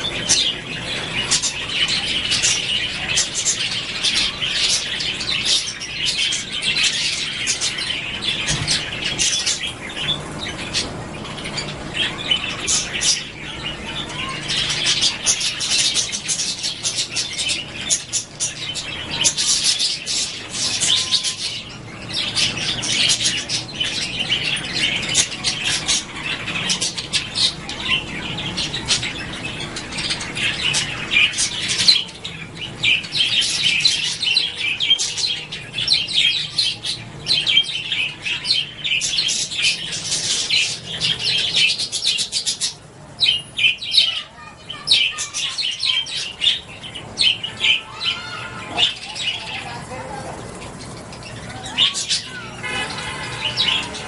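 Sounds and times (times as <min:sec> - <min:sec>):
budgerigars chirping: 0:00.0 - 0:54.0.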